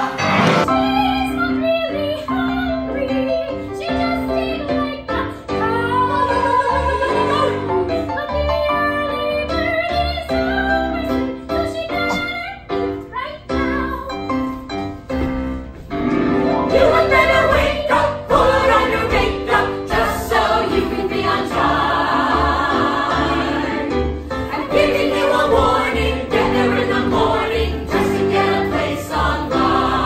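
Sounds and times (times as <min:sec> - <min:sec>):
chorus singing: 0:00.0 - 0:00.9, 0:16.6 - 0:30.0.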